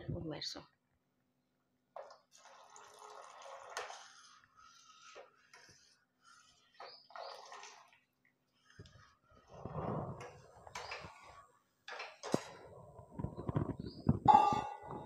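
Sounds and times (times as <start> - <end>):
liquid trickling into milk: 2.0 - 10.9.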